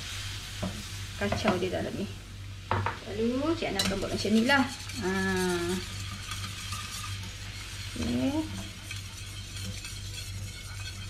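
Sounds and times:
sauce sizzling: 0.0 - 11.0
wire whisk scraping a pan: 3.7 - 11.0.

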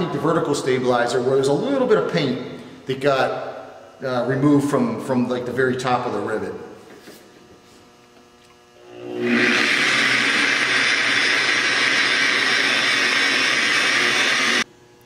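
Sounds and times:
electric rotary polisher running: 8.5 - 14.7.

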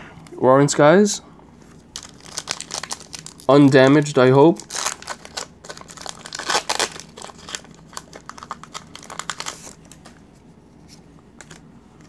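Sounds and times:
foil wrapper crinkling: 1.9 - 10.2.

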